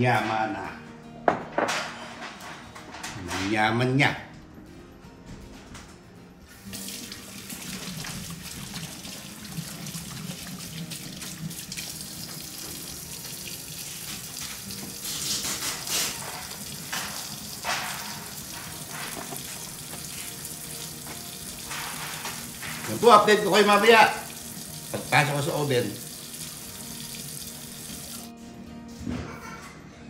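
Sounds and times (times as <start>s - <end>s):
faucet running: 6.5s - 28.3s
water splashes: 6.6s - 26.6s.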